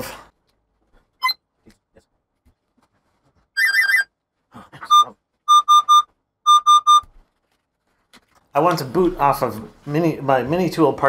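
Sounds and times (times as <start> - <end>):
laptop speaker beeping: 4.9 - 7.1.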